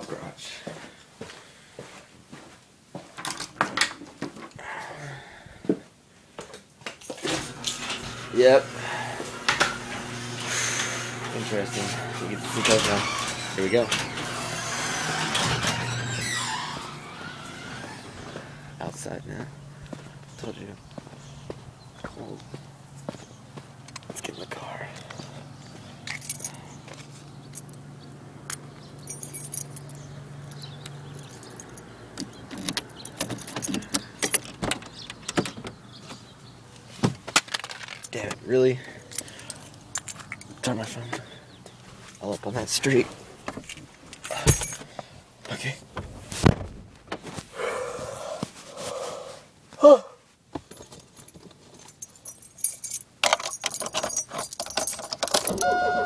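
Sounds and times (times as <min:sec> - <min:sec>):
car keys jangling: 0:26.0 - 0:26.8, 0:28.5 - 0:35.5, 0:39.0 - 0:40.6, 0:43.6 - 0:44.9, 0:50.7 - 0:56.0
steady electronic tone: 0:55.6 - 0:56.0.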